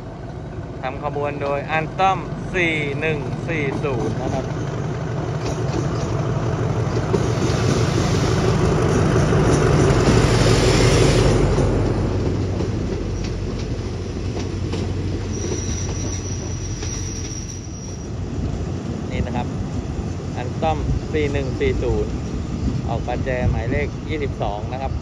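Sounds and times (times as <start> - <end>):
diesel locomotive passing: 0.0 - 25.0
high wheel squeal: 15.1 - 18.3.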